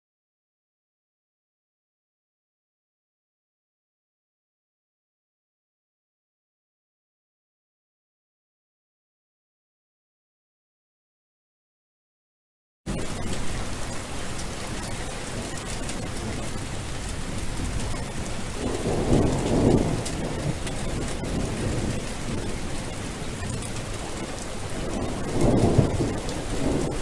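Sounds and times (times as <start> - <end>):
rolling thunder: 12.9 - 27.0
steady rain hiss: 12.9 - 27.0.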